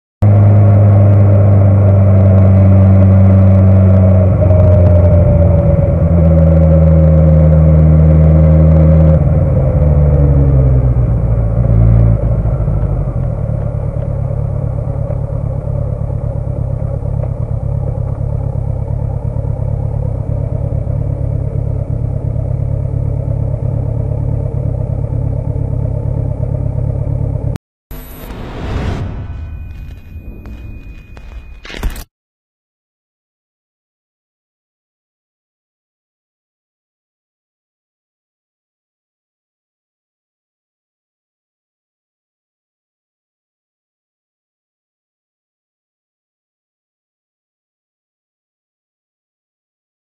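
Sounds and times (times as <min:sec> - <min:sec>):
motorcycle engine running: 0:00.2 - 0:32.0
steady rushing noise: 0:27.9 - 0:31.6.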